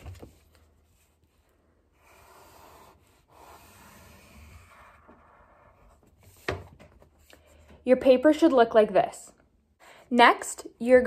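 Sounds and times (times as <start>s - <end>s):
pencil scratching on paper: 1.9s - 6.5s.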